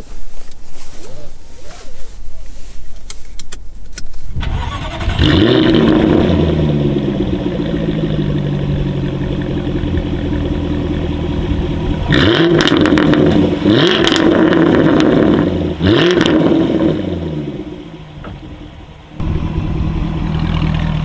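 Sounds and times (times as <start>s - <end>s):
car engine starting and revving: 4.4s - 21.0s.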